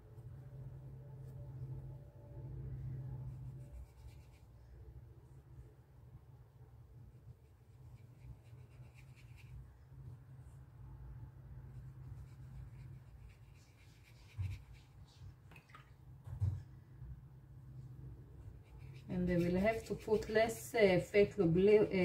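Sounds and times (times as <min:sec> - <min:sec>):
low steady hum: 0:00.0 - 0:22.0
brush scrubbing paint: 0:03.2 - 0:04.6, 0:07.1 - 0:09.8, 0:11.6 - 0:15.7, 0:18.4 - 0:20.8.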